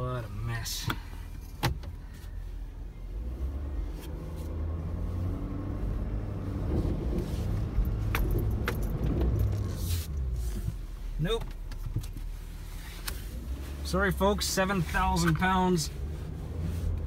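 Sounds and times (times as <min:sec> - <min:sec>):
truck diesel engine under load: 0:02.4 - 0:11.4.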